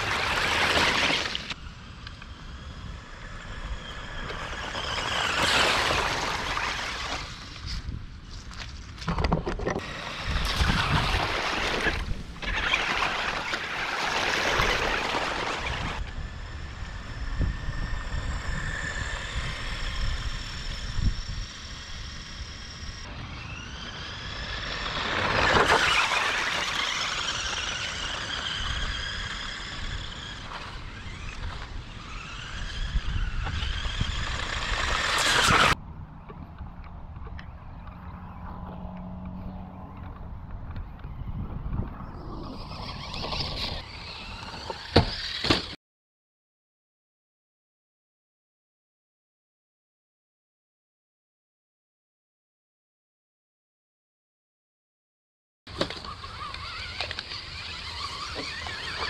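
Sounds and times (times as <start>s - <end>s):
electric motors whining: 0.0s - 8.0s, 9.8s - 45.8s, 55.7s - 59.0s.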